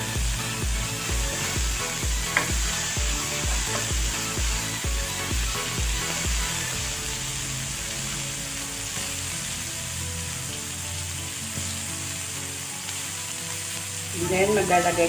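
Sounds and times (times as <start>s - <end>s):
background music with deep beat: 0.0s - 10.8s
vegetables sizzling in oil: 0.0s - 15.0s
spatula tap: 2.3s - 2.6s.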